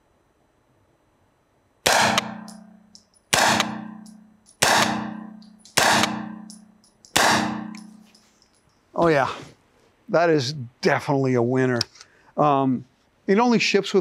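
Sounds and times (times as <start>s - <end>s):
gunshots echoing indoors: 1.8s - 8.0s.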